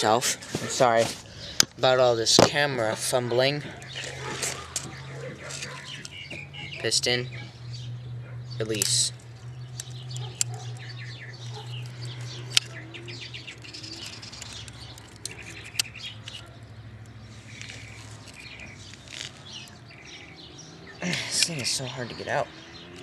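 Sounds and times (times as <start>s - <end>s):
birds chirping: 0.0s - 23.0s
metal tool clicks: 9.7s - 10.9s, 11.6s - 12.8s, 13.4s - 17.2s.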